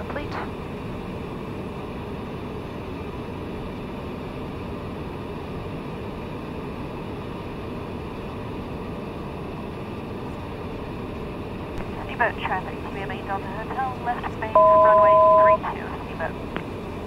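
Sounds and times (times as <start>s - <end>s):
turboprop aircraft cabin rumble: 0.0s - 17.0s
faint steady high tones: 12.1s - 16.4s.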